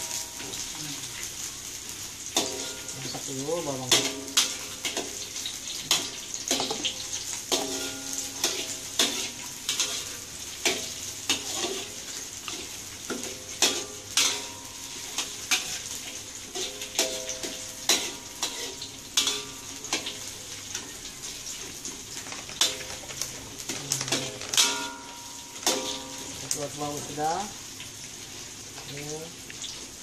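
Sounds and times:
onions sizzling: 0.0s - 30.0s
metal spatula scraping a wok: 2.3s - 3.0s, 3.9s - 20.9s, 22.5s - 26.5s.

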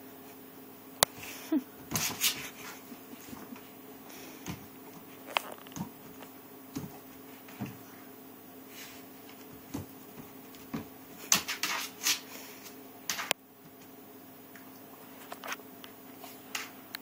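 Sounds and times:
steady low hum: 0.0s - 17.0s
dog thumping on rug: 4.4s - 7.9s, 9.3s - 11.8s.

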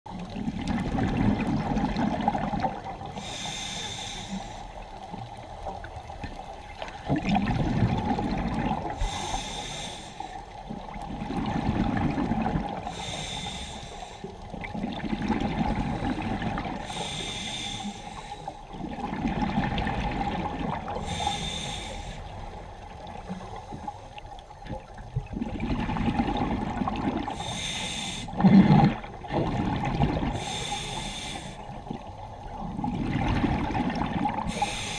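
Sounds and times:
diver breathing through regulator: 3.1s - 4.8s, 8.9s - 10.5s, 12.8s - 14.4s, 15.7s - 18.6s, 21.0s - 22.4s, 27.3s - 28.4s, 30.3s - 31.7s, 34.5s - 34.9s.

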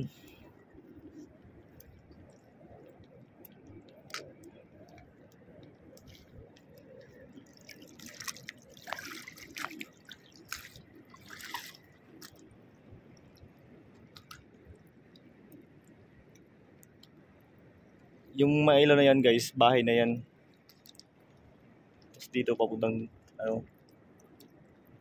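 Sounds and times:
seawater splashing and dripping: 0.0s - 18.4s, 20.3s - 25.0s
small sharp clicks: 20.6s - 21.4s.

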